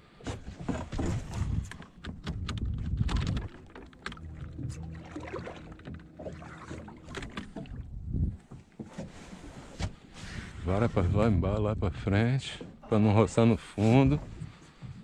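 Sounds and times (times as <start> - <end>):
low rumble: 4.2 - 8.5, 10.5 - 12.5.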